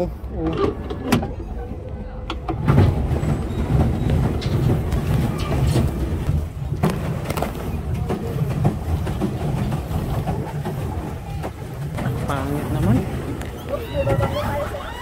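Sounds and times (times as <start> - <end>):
pedal boat drive rumble: 0.0 - 15.0.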